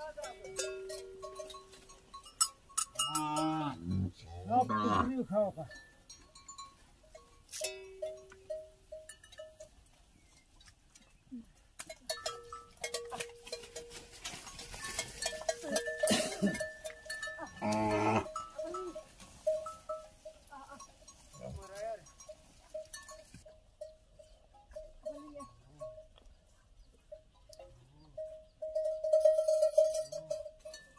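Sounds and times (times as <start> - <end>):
bells clanking: 0.0 - 9.8, 11.9 - 26.1, 27.1 - 30.9
hooves and bodies knocking: 11.8 - 26.2
cattle lowing: 12.9 - 21.8.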